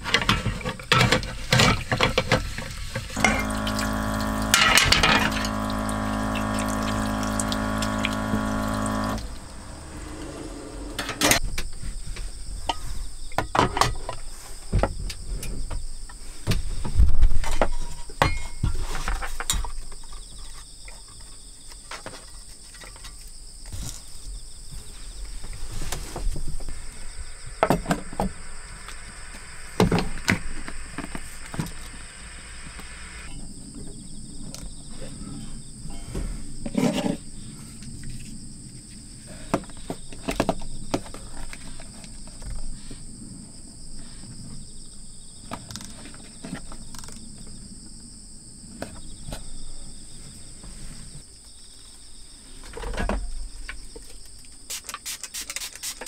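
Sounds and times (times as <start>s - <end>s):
insects chirping: 0.0s - 56.0s
water running into metal basin: 3.2s - 10.1s
pump hum: 3.2s - 11.4s, 26.6s - 33.4s.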